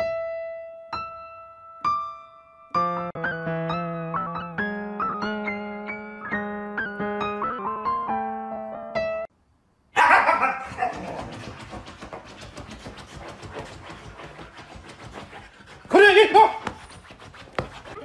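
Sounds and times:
piano music: 0.0 - 9.3
dog scratching cushion: 10.6 - 18.0.

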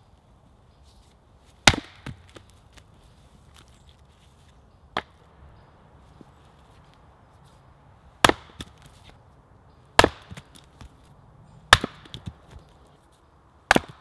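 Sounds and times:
axe striking a log: 1.6 - 2.5, 5.0 - 5.2, 8.2 - 9.0, 10.0 - 11.0, 11.7 - 12.7, 13.6 - 14.0.

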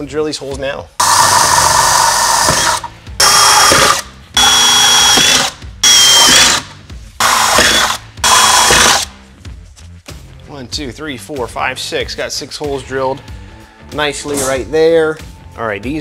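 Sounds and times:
cordless drill drilling sheet metal: 1.0 - 9.1.

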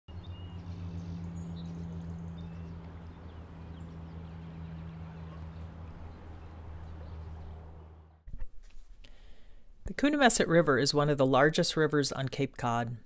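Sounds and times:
steady low hum: 0.1 - 10.0.

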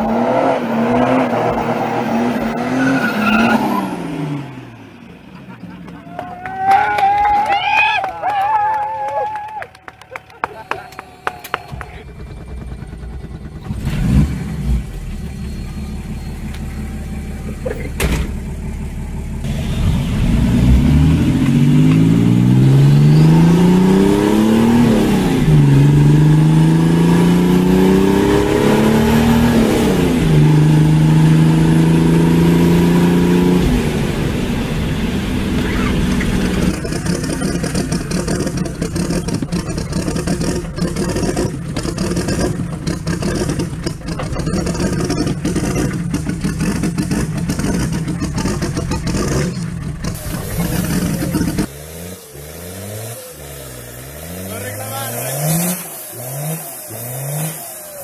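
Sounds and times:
diesel car engine accelerating: 0.0 - 8.8, 9.6 - 58.0.

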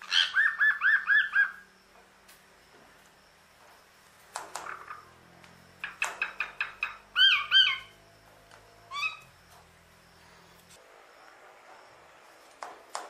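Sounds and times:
myna calling and whistling: 0.0 - 1.7, 5.8 - 8.0, 8.8 - 9.4.

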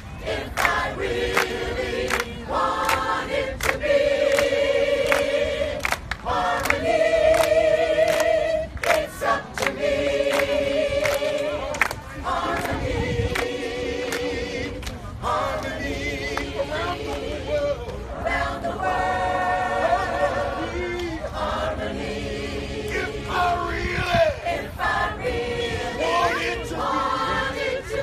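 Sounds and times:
group singing in unison: 0.0 - 28.0
hand claps on the beat: 0.5 - 16.5.

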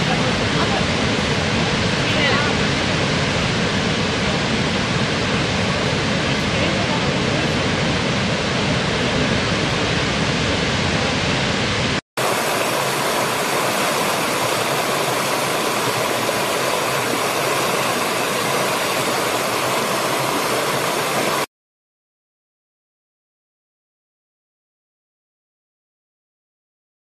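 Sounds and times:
waterfall rushing: 0.0 - 21.5
stream splashing over stones: 12.2 - 21.5.

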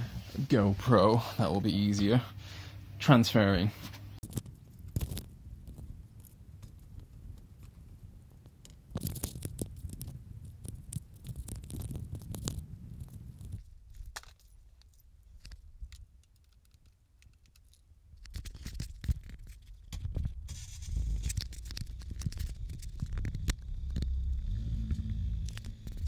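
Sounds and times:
low rumble: 20.3 - 26.0
steady low hum: 20.5 - 26.0.

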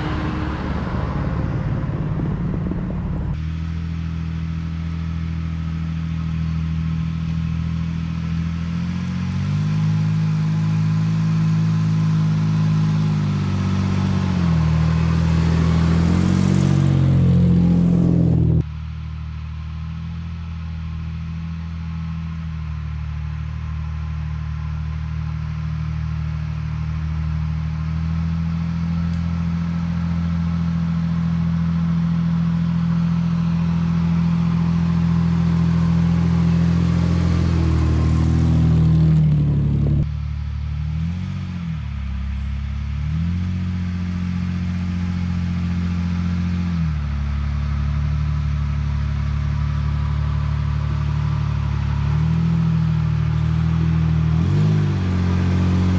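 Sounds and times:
pickup truck engine revving: 0.0 - 4.4, 8.5 - 18.6, 27.4 - 40.1, 43.0 - 55.9.

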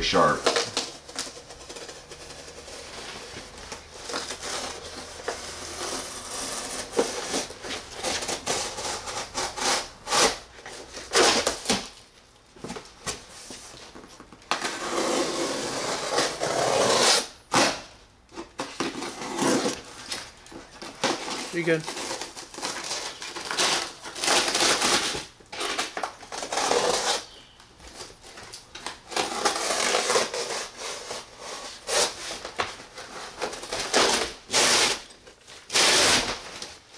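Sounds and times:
plastic and cardboard tearing: 0.0 - 12.0, 14.5 - 36.9
knife cutting cardboard: 0.2 - 11.8, 14.5 - 17.8, 18.4 - 20.2, 20.9 - 27.4, 29.1 - 36.7.

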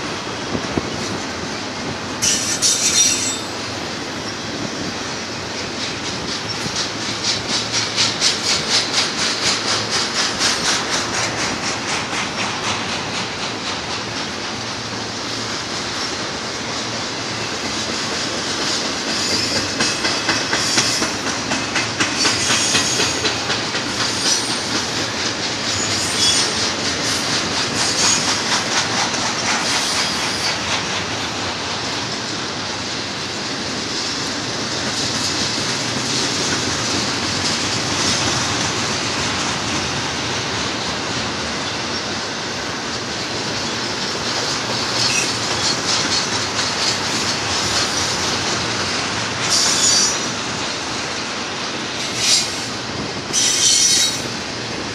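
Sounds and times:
train wheels clicking over rails: 0.0 - 54.9
high wheel squeal: 2.2 - 4.4, 19.1 - 21.2, 22.2 - 23.3, 25.6 - 28.4, 44.9 - 47.0, 49.5 - 50.4, 52.0 - 54.4.

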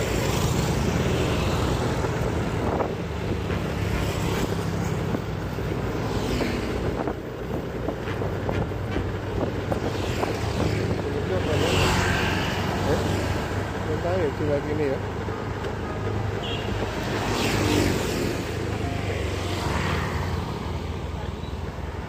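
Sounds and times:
wind rushing over microphone: 0.0 - 13.8
motorbikes passing by: 0.0 - 22.0.

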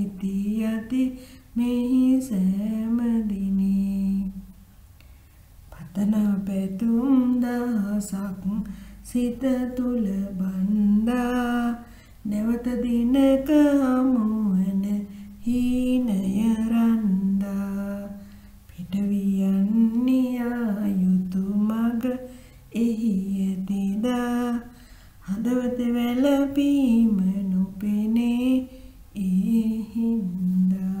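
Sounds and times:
person singing wordless melody: 0.0 - 31.0.

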